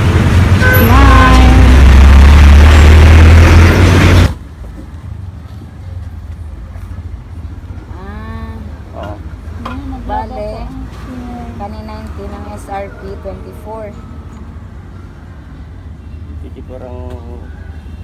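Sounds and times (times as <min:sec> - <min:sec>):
motor vehicle engine running: 0:00.0 - 0:04.8.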